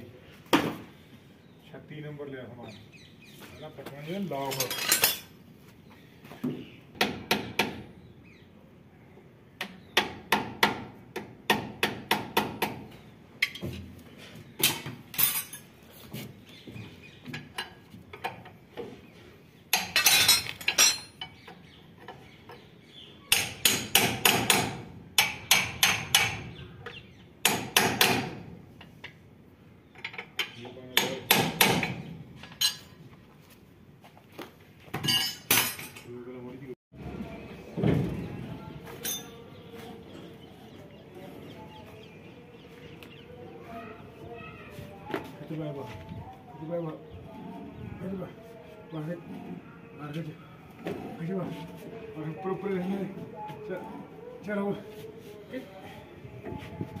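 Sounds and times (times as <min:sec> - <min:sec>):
spanners knocking on metal: 0:19.7 - 0:22.6, 0:29.9 - 0:33.0, 0:35.0 - 0:36.1.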